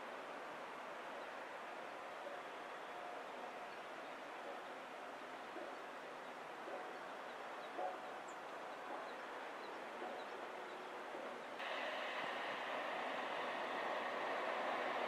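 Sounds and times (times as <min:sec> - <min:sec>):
wind: 0:00.0 - 0:15.0
open water: 0:04.4 - 0:15.0.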